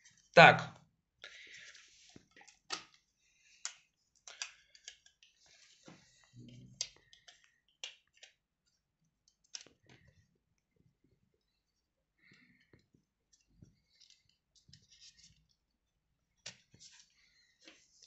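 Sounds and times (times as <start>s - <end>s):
cables and plug adapter handled: 1.6s - 8.4s.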